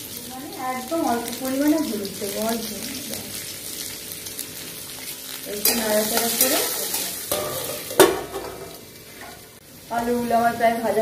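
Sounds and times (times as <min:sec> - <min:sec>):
potatoes frying in oil: 0:00.0 - 0:11.0
steel plate clanking on wok: 0:05.6 - 0:09.4.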